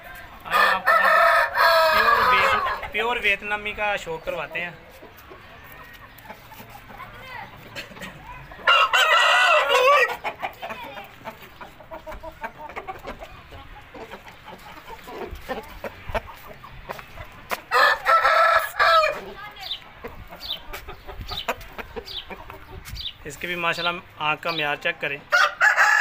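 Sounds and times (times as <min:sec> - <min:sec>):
chickens clucking: 0:00.0 - 0:26.0
rooster crowing: 0:00.5 - 0:02.8, 0:08.6 - 0:10.1, 0:17.7 - 0:19.2, 0:25.3 - 0:26.0.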